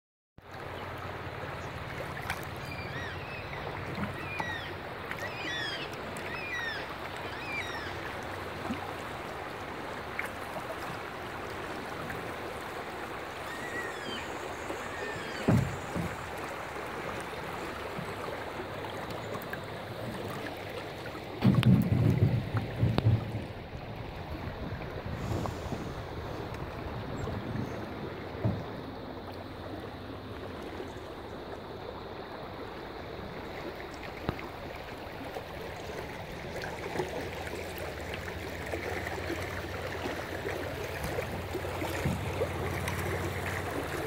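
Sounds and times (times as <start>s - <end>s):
river water rushing over rocks: 1.0s - 44.0s
birds chirping: 2.6s - 8.0s.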